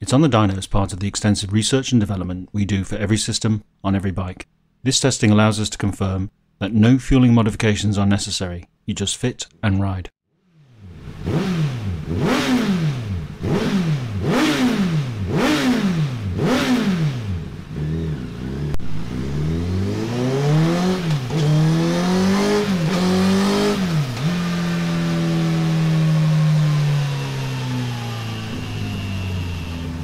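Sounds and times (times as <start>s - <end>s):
motorcycle engine revving: 10.4s - 30.0s.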